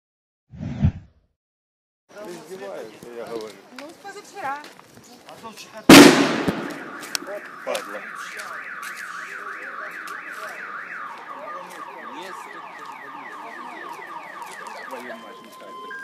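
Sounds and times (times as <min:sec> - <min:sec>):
car alarm warbling: 0:06.3 - 0:16.0.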